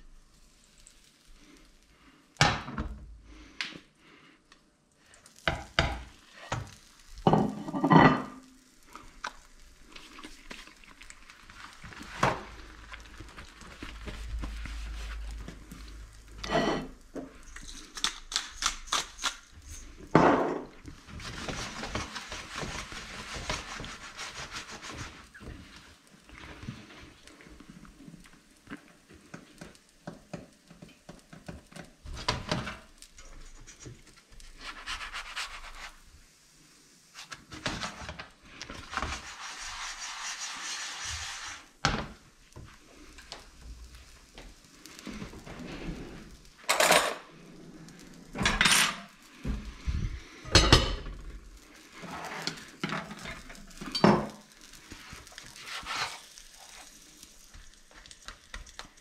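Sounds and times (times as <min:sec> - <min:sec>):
food hissing in a pan: 0:00.0 - 0:02.4, 0:05.0 - 0:20.2, 0:20.8 - 0:59.0
metal utensils scraping a pan: 0:07.2 - 0:08.5, 0:16.4 - 0:17.0, 0:48.4 - 0:49.2, 0:51.9 - 0:54.4, 0:55.5 - 0:56.9.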